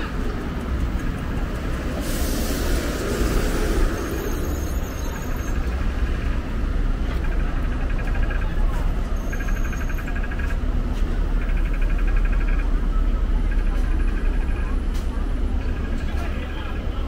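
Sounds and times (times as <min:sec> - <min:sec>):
street traffic rumbling: 0:00.0 - 0:17.0
burst of hiss: 0:01.9 - 0:05.0.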